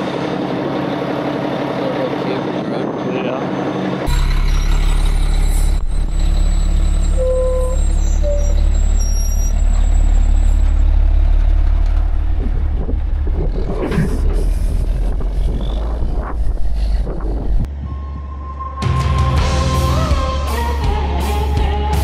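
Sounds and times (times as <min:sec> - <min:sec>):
truck diesel engine rumbling: 0:00.0 - 0:22.0
short beeps: 0:17.8 - 0:19.0.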